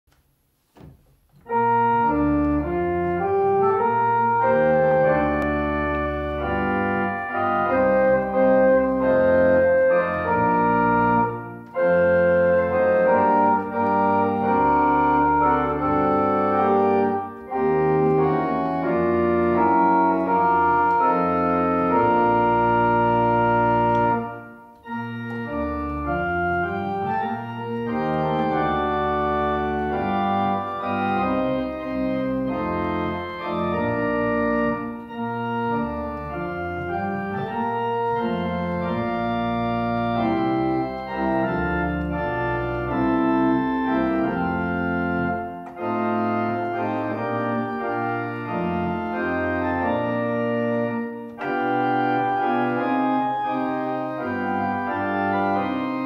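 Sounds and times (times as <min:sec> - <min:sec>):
organ playing a hymn: 0:00.8 - 0:56.0.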